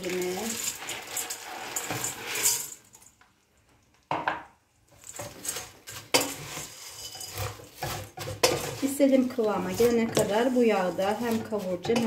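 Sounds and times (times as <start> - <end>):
wooden spoon scraping pot: 0.0 - 2.8, 5.0 - 12.0.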